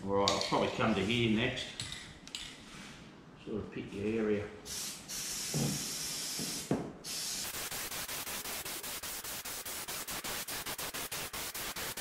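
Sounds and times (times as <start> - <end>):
aerosol can hissing and sputtering: 4.8 - 12.0.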